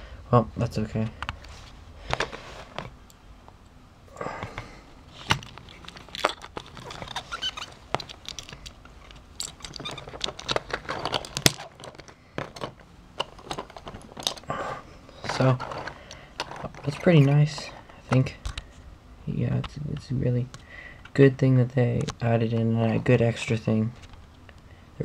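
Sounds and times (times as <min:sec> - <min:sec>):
plastic toy parts clicking: 0:05.3 - 0:14.5.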